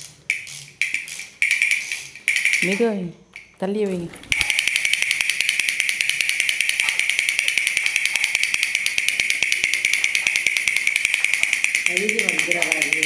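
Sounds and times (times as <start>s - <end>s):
toy mechanism whirring buzz: 0.0s - 2.9s, 4.3s - 13.0s
rapid even clicking: 4.3s - 13.0s.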